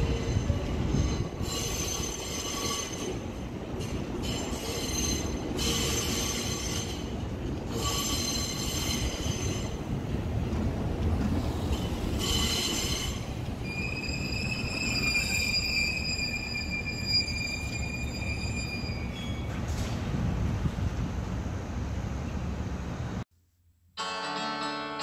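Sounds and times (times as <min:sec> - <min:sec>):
wheels squealing against rails: 0:00.0 - 0:10.0, 0:11.3 - 0:20.0
electric train rumbling: 0:00.0 - 0:23.2.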